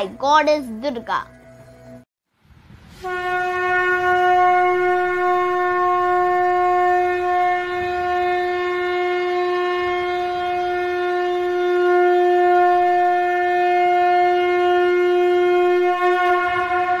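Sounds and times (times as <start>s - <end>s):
conch shell blown: 2.9s - 17.0s.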